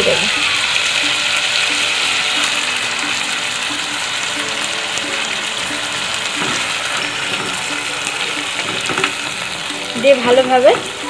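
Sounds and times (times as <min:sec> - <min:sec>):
chicken sizzling in hot oil: 0:00.0 - 0:11.0
wooden spatula stirring: 0:06.2 - 0:11.0.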